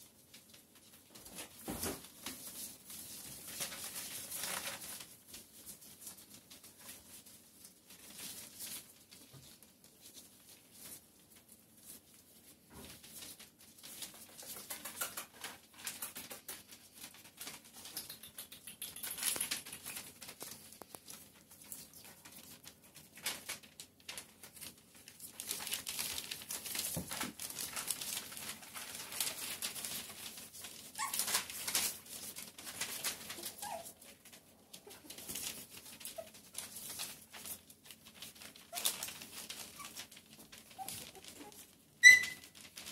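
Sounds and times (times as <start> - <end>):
paper rustling and crinkling: 0.0 - 18.2, 19.0 - 42.9
puppies scrambling on newspaper: 0.0 - 42.9
puppy high whimpers: 30.9 - 31.4, 33.4 - 34.2, 40.7 - 42.4.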